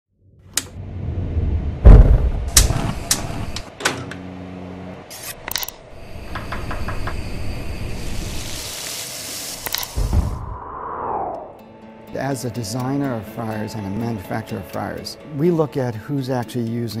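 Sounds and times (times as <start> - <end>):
heavy thud: 1.8 - 2.7
steady hiss: 6.0 - 10.4
brief low hum: 9.8 - 11.6.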